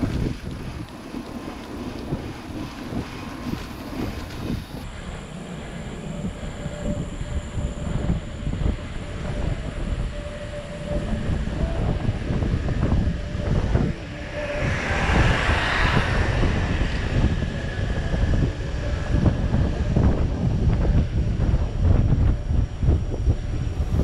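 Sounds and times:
wind buffeting microphone: 0.0s - 24.0s
road rumble: 11.8s - 19.7s.

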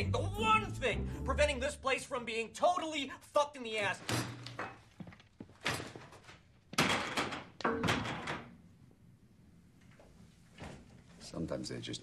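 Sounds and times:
door slamming: 6.8s - 8.6s.

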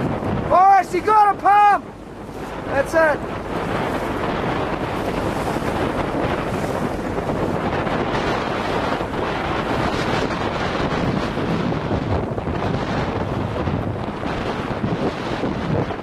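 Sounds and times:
choppy water splashing: 0.0s - 16.0s
wind buffeting microphone: 0.0s - 16.0s.

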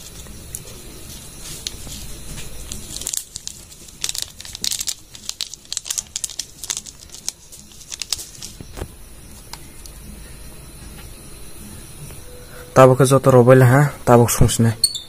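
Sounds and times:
foil sachet crinkling: 0.0s - 9.9s.

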